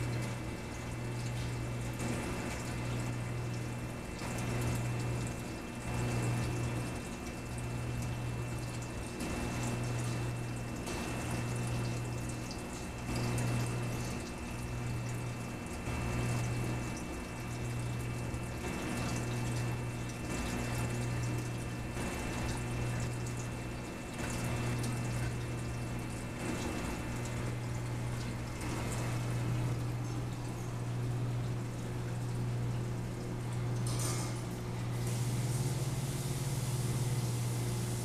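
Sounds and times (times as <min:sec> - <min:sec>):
aquarium pump humming: 0:00.0 - 0:38.0
moving water: 0:00.0 - 0:38.0.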